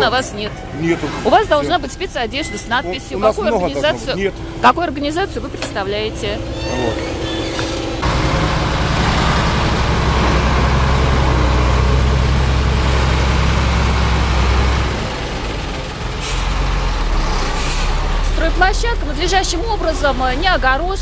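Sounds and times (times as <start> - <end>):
diesel truck engine drone: 0.0 - 21.0
air brakes hissing: 16.2 - 16.6, 17.4 - 18.1.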